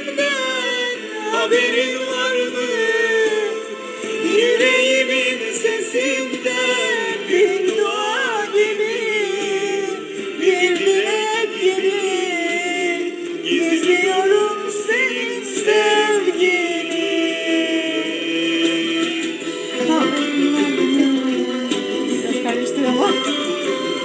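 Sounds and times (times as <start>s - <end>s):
instrumental backing music: 0.0s - 24.0s
woman singing into microphone: 4.2s - 19.2s, 19.8s - 23.5s.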